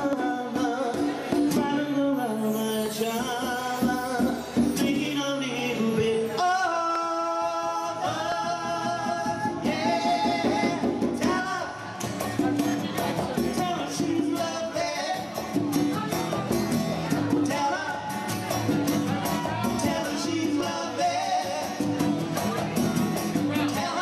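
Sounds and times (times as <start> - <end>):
man singing: 0.0 - 16.4, 17.0 - 24.0
acoustic guitars strumming: 0.0 - 24.0
congas: 7.6 - 24.0.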